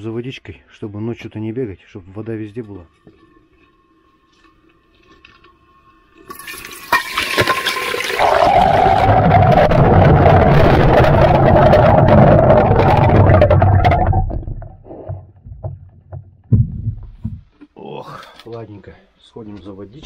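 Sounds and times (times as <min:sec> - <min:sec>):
water pouring into kettle: 0:06.2 - 0:10.4.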